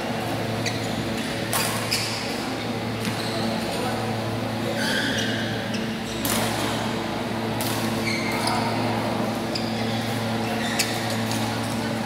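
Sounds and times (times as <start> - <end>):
steady hall hum: 0.0 - 12.0
shoes squeaking on court floor: 0.5 - 3.7, 4.7 - 6.7, 7.8 - 11.9.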